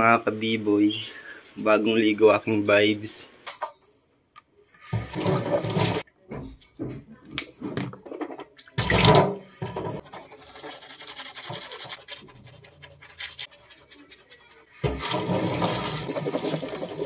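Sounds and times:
tap water running: 4.8s - 6.1s, 8.7s - 11.9s, 14.8s - 17.0s
toothbrush scrubbing teeth: 10.0s - 16.8s.

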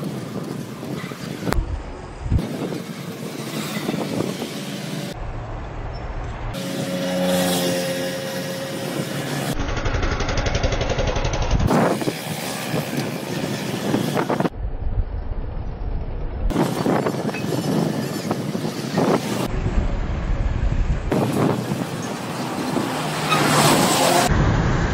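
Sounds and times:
road traffic: 0.0s - 24.9s
steady pitched drone: 5.1s - 11.7s.

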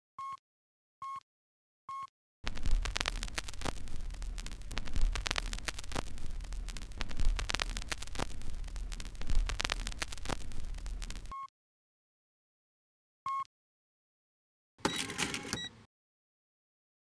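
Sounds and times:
crackling static with clicks: 2.4s - 11.5s
low hum: 2.5s - 11.3s.

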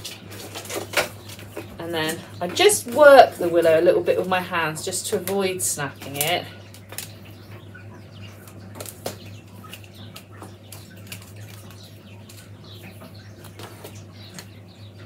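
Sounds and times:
willow rods rustling and rubbing: 0.0s - 4.4s.

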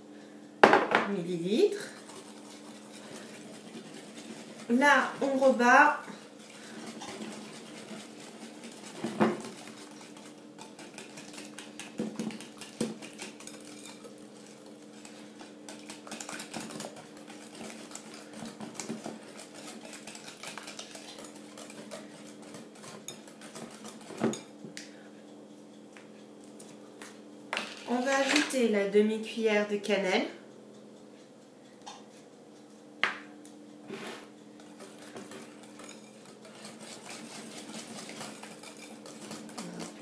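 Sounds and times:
whisk clicking against glass bowl: 34.6s - 40.0s.

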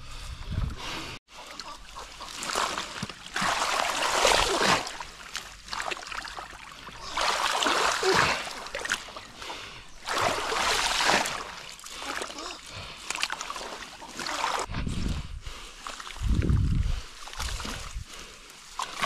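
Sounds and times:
water splashing and sloshing: 0.5s - 19.0s.

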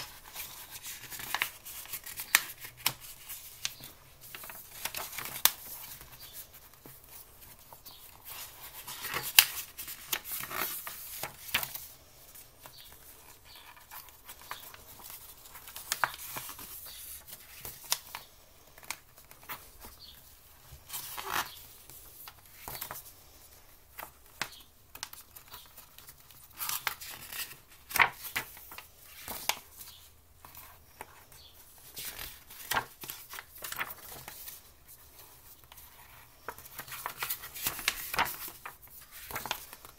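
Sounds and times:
paper rustling and flicking: 0.0s - 11.9s, 24.0s - 30.6s, 31.7s - 39.9s
book pages turning: 0.0s - 23.1s, 23.9s - 39.9s.

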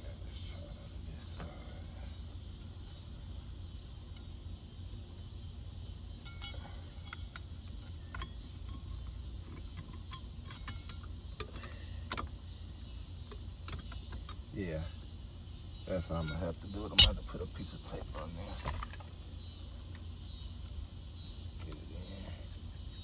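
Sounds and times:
low hum: 0.0s - 23.0s
small parts clicking and tapping: 6.2s - 12.4s, 13.2s - 14.5s.

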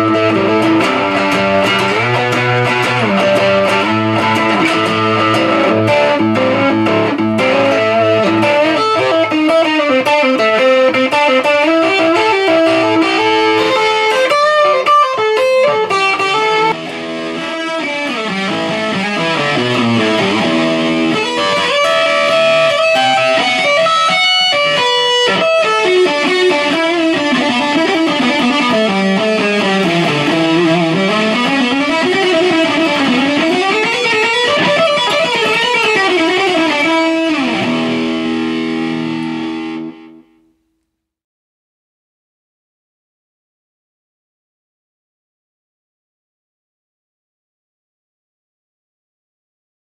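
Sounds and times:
electric guitar melodic lines: 0.0s - 40.6s.

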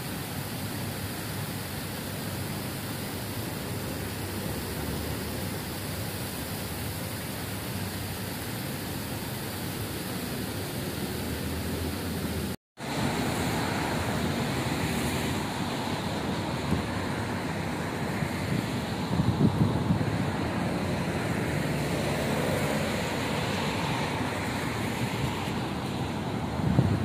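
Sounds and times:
fountain water splashing: 0.0s - 27.0s
traffic rumble: 0.0s - 27.0s
wind on microphone: 16.2s - 22.4s, 23.0s - 27.0s.

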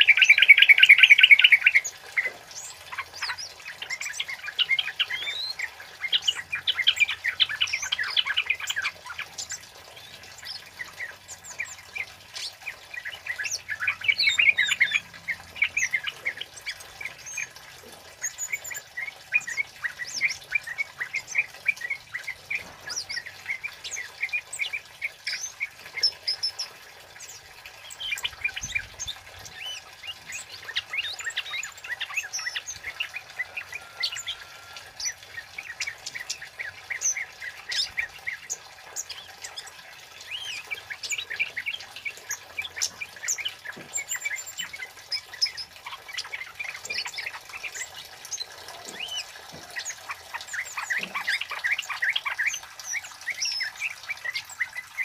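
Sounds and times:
bird chirping sharp high calls: 0.0s - 17.6s, 27.3s - 55.0s.

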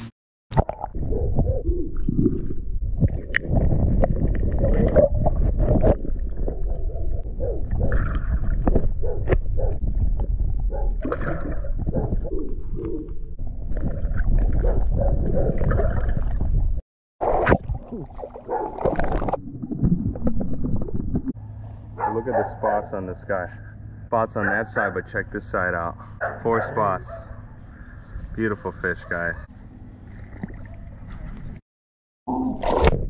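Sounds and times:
gurgling water: 0.6s - 21.4s, 30.1s - 31.6s
low water rumble: 0.6s - 22.1s, 29.7s - 31.6s.

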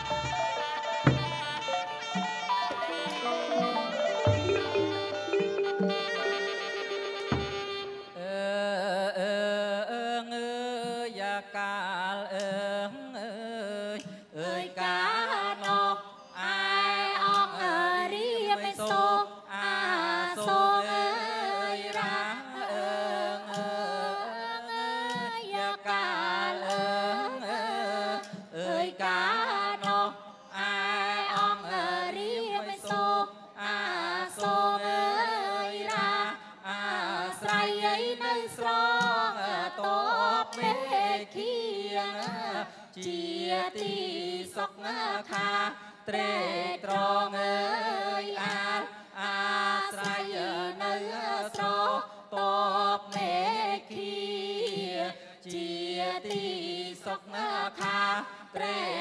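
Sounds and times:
ornamented melody: 0.0s - 8.2s
short percussive strikes: 0.0s - 8.2s.

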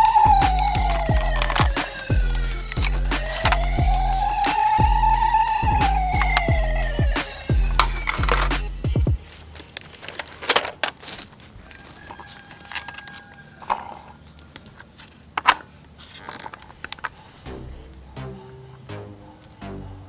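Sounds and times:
toy parts clicking and clattering: 0.0s - 8.7s, 9.6s - 17.3s
background music: 0.0s - 9.6s, 17.5s - 20.0s.

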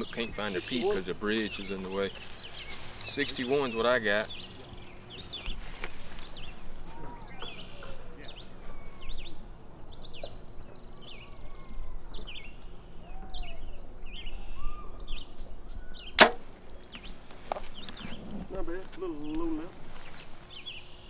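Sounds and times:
small birds chirping: 0.0s - 21.0s
bow being shot: 16.2s - 16.5s.

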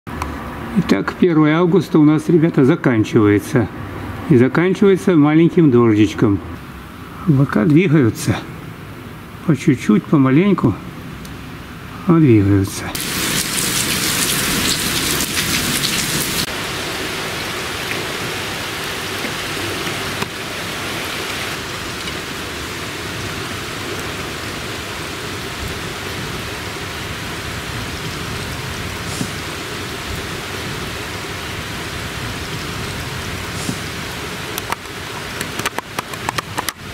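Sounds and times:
rain falling: 12.8s - 36.9s.

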